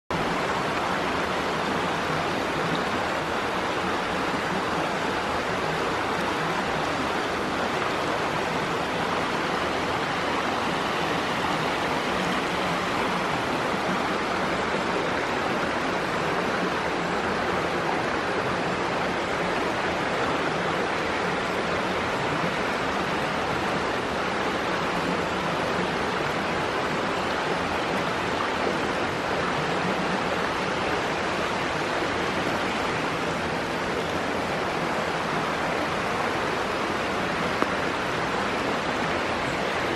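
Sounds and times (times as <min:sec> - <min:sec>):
stream running over rocks: 0:00.1 - 0:39.9.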